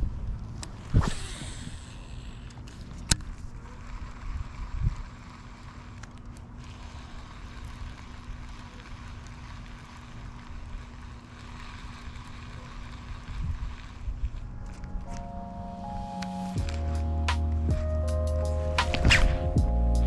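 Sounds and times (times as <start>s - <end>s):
wind rumbling on microphone: 0.0s - 2.4s, 3.1s - 5.6s, 10.3s - 15.3s.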